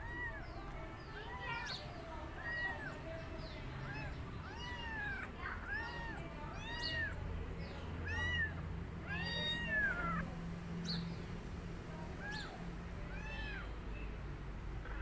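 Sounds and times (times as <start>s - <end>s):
cat meowing: 0.0s - 1.8s, 2.4s - 3.0s, 3.8s - 7.2s, 8.0s - 10.3s, 12.1s - 12.5s, 13.1s - 13.8s.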